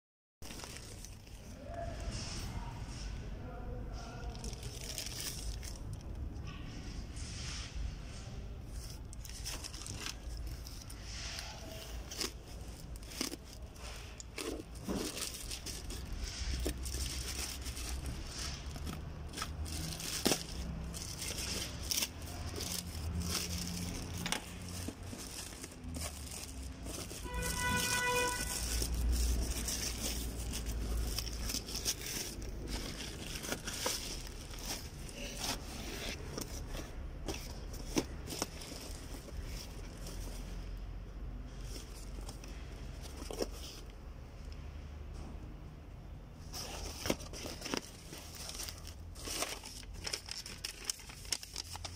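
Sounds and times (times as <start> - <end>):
plastic bag crinkling and tearing: 0.4 - 1.7, 4.2 - 6.2, 8.8 - 40.5, 46.6 - 51.9
cardboard box handled: 11.7 - 40.5, 41.7 - 43.9, 46.5 - 51.9.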